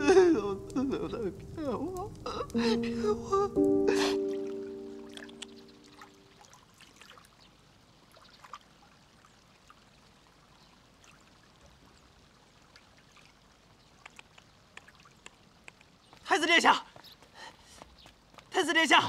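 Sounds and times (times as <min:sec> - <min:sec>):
faint trickle of pond water: 0:03.9 - 0:18.5
soft ticks: 0:14.0 - 0:15.9.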